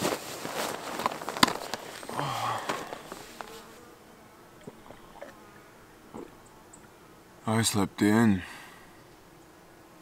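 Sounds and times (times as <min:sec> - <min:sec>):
sleeping bag rustling: 0:00.0 - 0:03.8
fly buzzing: 0:00.0 - 0:10.0.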